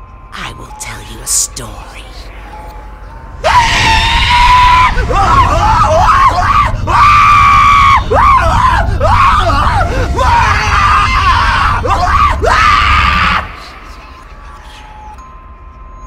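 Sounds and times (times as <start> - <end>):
recorded screams through speaker: 3.4 - 13.7.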